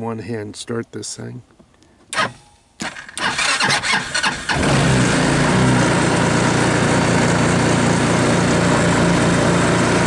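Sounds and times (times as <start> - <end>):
starter cranking engine: 2.2 - 7.0
engine running: 2.2 - 10.0.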